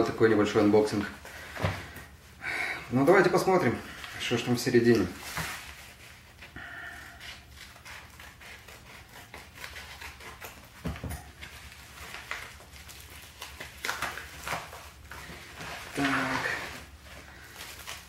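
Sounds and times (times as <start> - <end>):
plastic mailer crinkling and tearing: 9.4 - 18.0.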